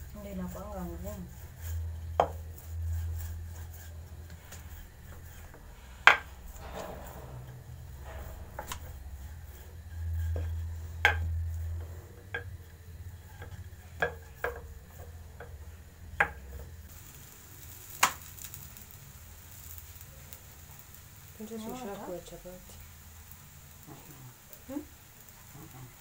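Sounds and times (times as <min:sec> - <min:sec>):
rolling pin rolling pastry: 0:00.0 - 0:16.9.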